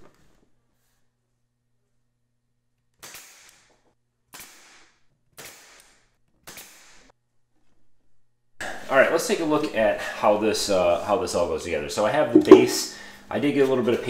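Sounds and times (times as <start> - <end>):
pneumatic nail gun firing: 3.0 - 7.1.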